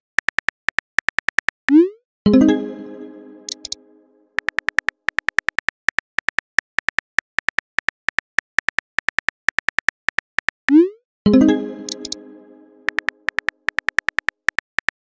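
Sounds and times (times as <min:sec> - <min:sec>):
message sent chime: 0:02.3 - 0:04.2, 0:11.3 - 0:13.0
keyboard typing clicks: 0:03.4 - 0:03.8, 0:04.4 - 0:15.0
high chirp: 0:11.3 - 0:13.2.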